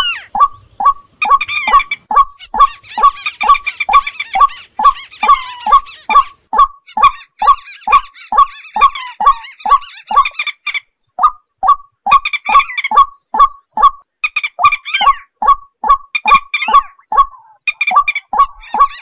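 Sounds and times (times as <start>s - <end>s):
birds making short falling calls: 0.0s - 6.5s
high bird chattering: 0.0s - 19.0s.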